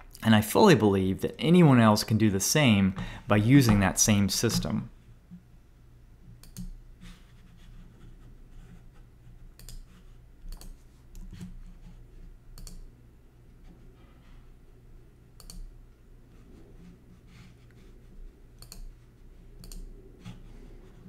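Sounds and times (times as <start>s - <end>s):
low steady hum: 0.0s - 21.0s
computer mouse clicks: 6.4s - 6.8s, 9.6s - 9.9s, 10.5s - 11.6s, 12.6s - 12.9s, 15.4s - 15.7s, 18.6s - 18.9s, 19.6s - 19.9s.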